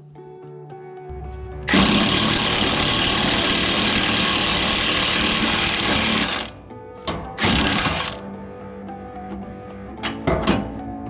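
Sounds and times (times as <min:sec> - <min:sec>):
impact driver hammering: 0:01.7 - 0:08.2.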